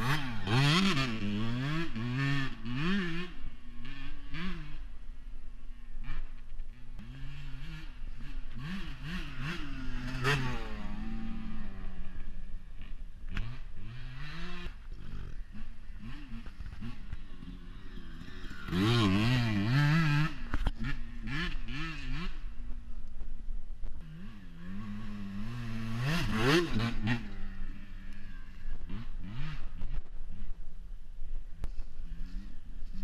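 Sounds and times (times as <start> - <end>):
dirt bike engine revving: 0.0 - 22.9, 23.9 - 30.6.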